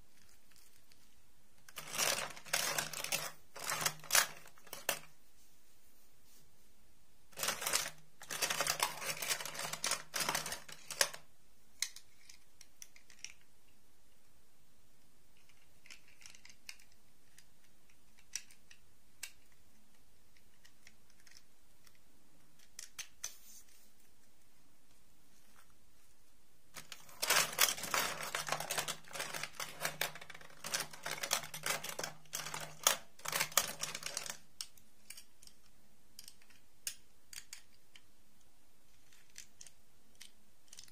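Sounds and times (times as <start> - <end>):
plastic dolls clicking and rattling: 1.6 - 5.1, 7.3 - 13.5, 15.4 - 19.6, 26.8 - 38.1, 39.0 - 40.9.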